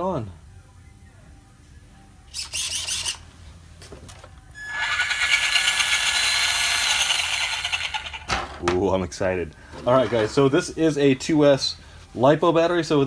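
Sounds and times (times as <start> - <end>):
electric motor high whine: 4.6 - 8.3.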